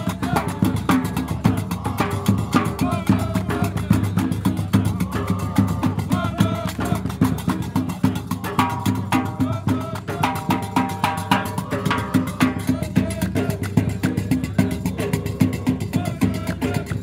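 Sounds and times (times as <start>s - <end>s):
frame drum beats: 0.0s - 17.0s
men singing together: 0.0s - 17.0s
handclaps: 6.6s - 7.6s, 13.5s - 13.9s.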